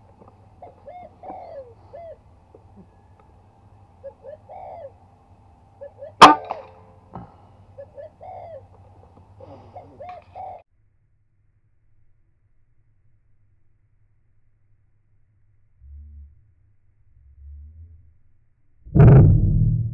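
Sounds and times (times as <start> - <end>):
doves cooing: 0.0 - 5.1, 5.8 - 10.6
air rifle shot: 6.2 - 6.8.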